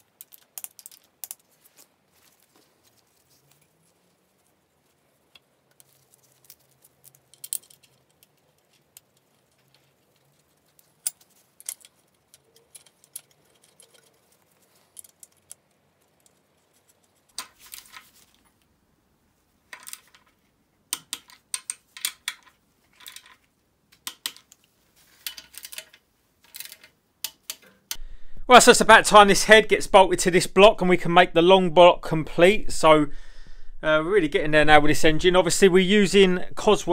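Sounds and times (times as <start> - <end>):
metal tools clicking and clinking: 5.7 - 18.1, 24.0 - 28.0.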